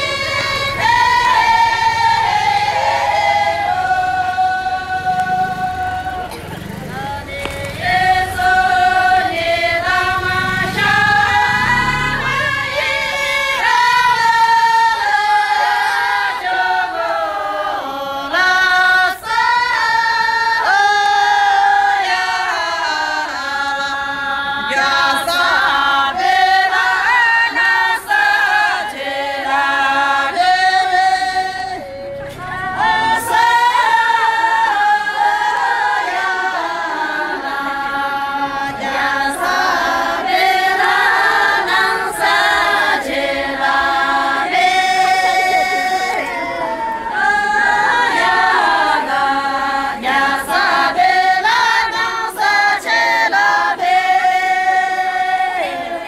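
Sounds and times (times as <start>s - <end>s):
women singing unaccompanied: 0.0s - 56.0s.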